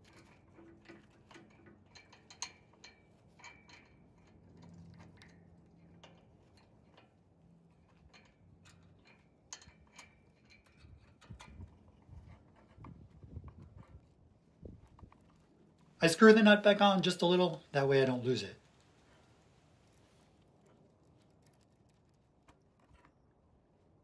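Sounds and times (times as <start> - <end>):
small metallic clicks: 0.0 - 16.0, 19.8 - 23.2.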